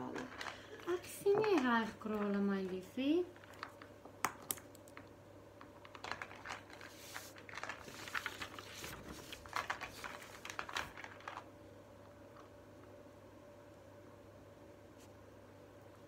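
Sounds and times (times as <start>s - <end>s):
plastic beads clicking and rattling: 3.4s - 8.2s.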